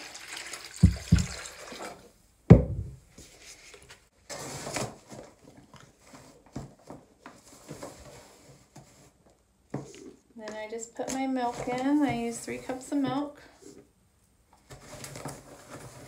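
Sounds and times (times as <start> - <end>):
container thump on counter: 2.5 - 3.0
rustling: 14.6 - 16.0.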